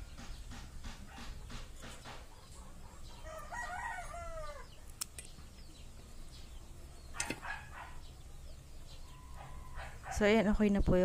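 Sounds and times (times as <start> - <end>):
rooster crowing: 3.0 - 4.8
sharp clicks: 4.8 - 5.4, 7.2 - 7.5.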